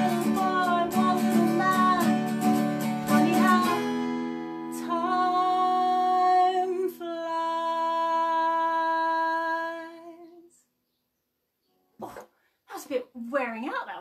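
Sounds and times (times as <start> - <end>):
strummed acoustic guitar: 0.0 - 7.0
woman singing: 0.0 - 10.6.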